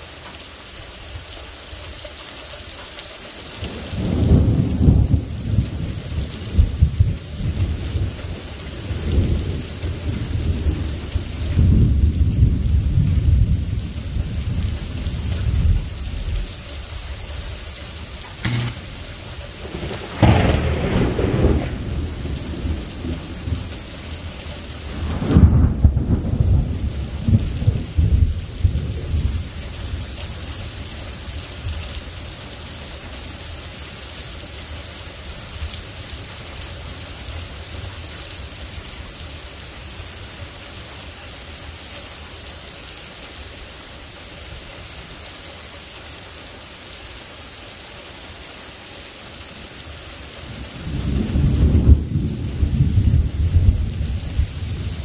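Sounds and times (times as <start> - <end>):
heavy rain falling: 0.0 - 55.0
thunder rumbling: 3.6 - 16.5, 17.5 - 30.0, 50.5 - 55.0.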